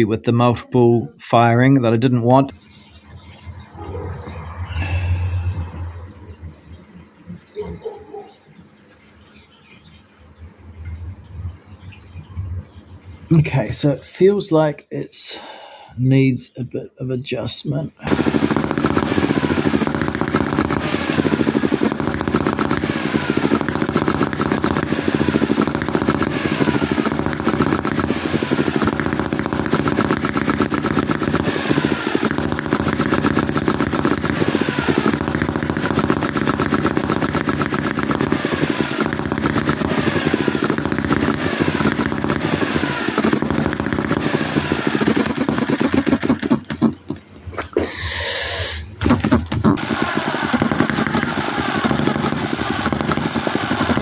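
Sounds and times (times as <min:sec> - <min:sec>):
small engine running with rapid beat: 0:02.7 - 0:08.3, 0:18.0 - 0:47.2, 0:49.0 - 0:54.0.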